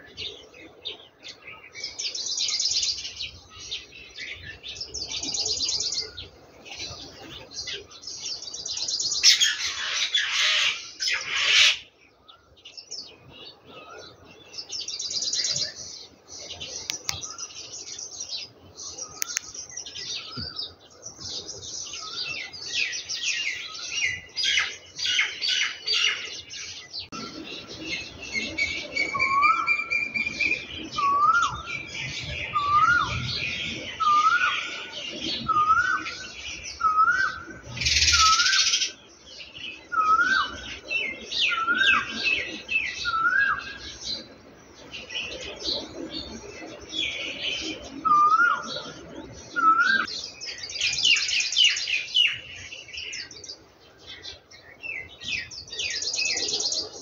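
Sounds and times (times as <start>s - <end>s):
birds chirping: 0.0s - 57.0s
bird rising call: 27.2s - 31.9s, 32.5s - 39.0s.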